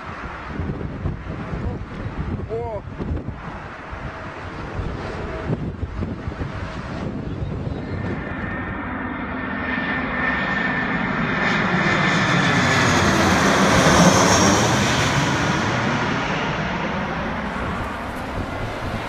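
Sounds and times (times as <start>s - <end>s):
high jet engine whine: 0.0s - 19.0s
jet airliner roar overhead: 0.0s - 19.0s.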